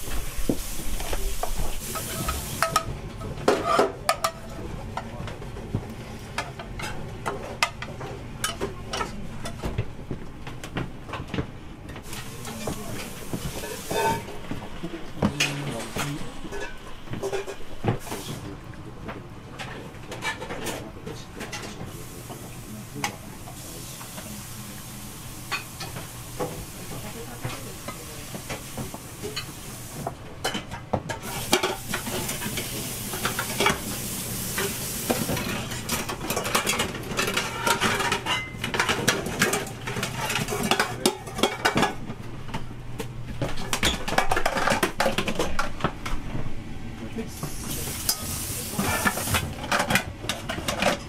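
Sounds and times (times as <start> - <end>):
metal dishes clattering: 2.0 - 4.4, 12.0 - 14.6, 15.3 - 17.8, 19.6 - 20.8, 35.2 - 42.1, 43.4 - 45.8.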